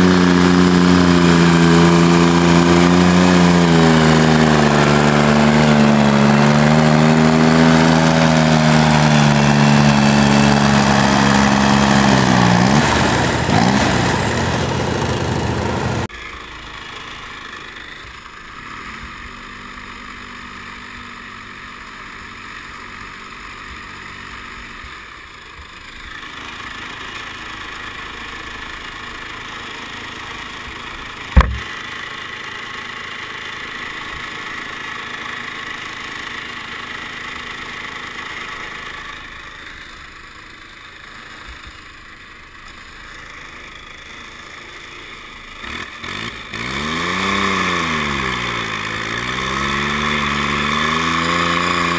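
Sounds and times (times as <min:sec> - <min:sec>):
diesel tractor engine idling: 0:03.2 - 0:45.6
sharp loud knock: 0:31.4 - 0:31.7.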